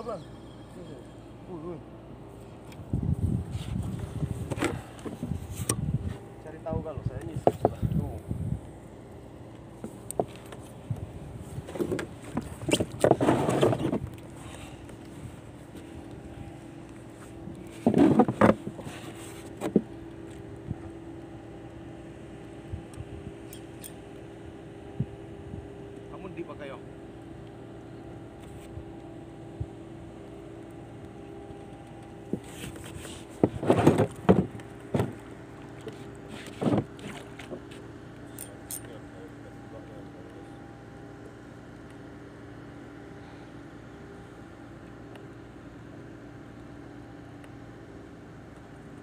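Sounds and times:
faint steady hum: 0.0s - 49.0s
knocks on boat: 33.4s - 35.2s.

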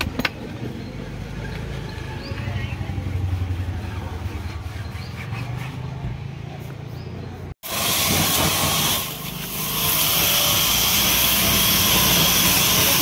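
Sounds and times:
pressure washer jet spraying: 7.6s - 13.0s.

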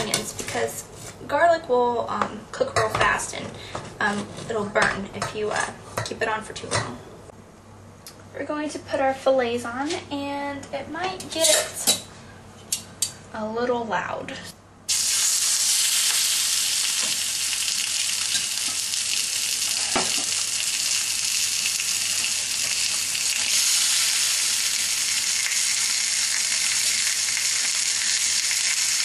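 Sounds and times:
fish sizzling in hot oil: 14.9s - 29.0s.

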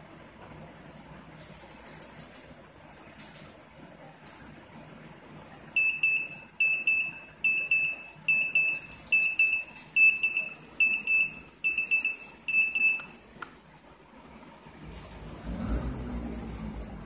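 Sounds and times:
alarm clock buzzer beeping: 5.8s - 13.0s.

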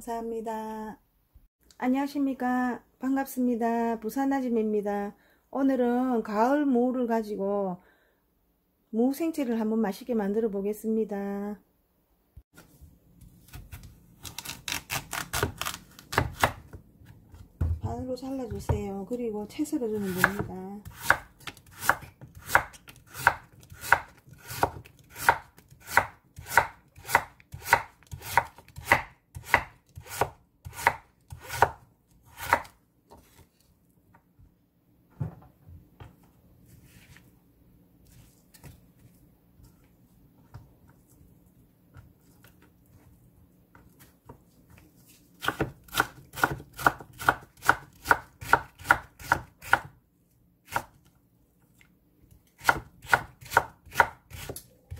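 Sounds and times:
knife chopping on wooden board: 20.0s - 32.8s, 45.4s - 49.9s, 52.6s - 54.6s.

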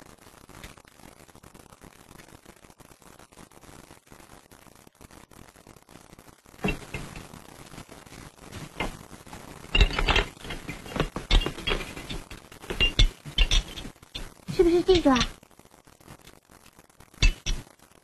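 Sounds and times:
faint hiss: 0.0s - 18.0s
glass and hard objects clinking: 6.6s - 7.3s, 9.7s - 14.3s, 17.2s - 17.6s.

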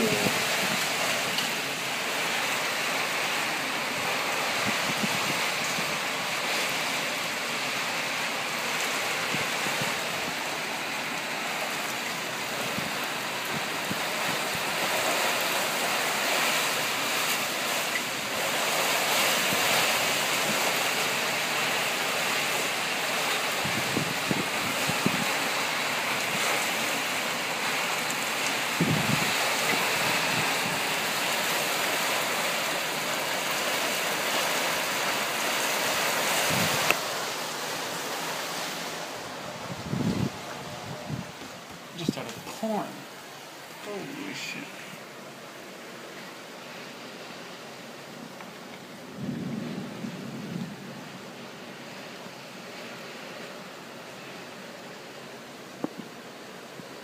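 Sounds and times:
gusty wind: 0.0s - 17.2s, 23.4s - 27.6s, 28.6s - 31.8s, 35.7s - 43.9s, 48.9s - 52.0s
heavy rain pouring: 0.0s - 57.0s.

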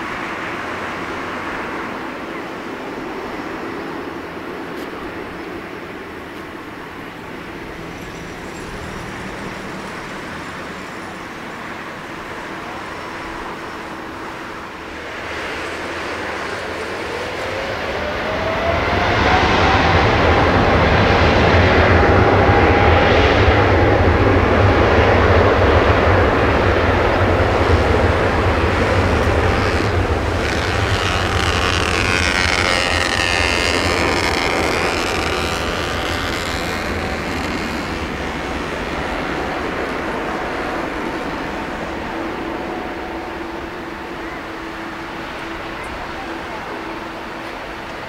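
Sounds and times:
jet engines roaring at takeoff: 0.0s - 48.0s.

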